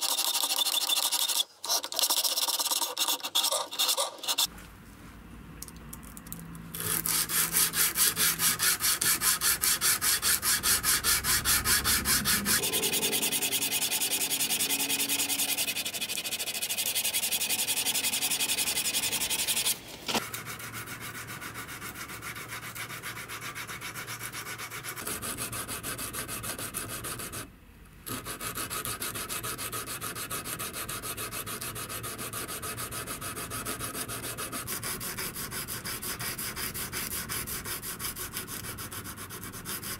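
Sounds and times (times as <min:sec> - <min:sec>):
abrasive block rubbing steel blade: 0:06.8 - 0:19.8.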